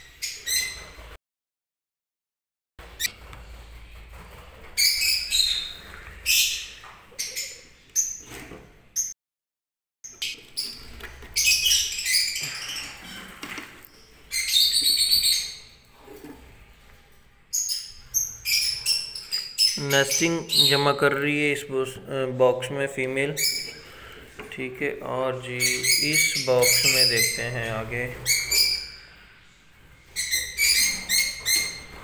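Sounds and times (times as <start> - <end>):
lovebirds chirping and squawking: 0.0 - 1.2, 4.1 - 9.2, 10.1 - 16.6, 17.4 - 21.6, 23.1 - 24.4, 25.1 - 32.0.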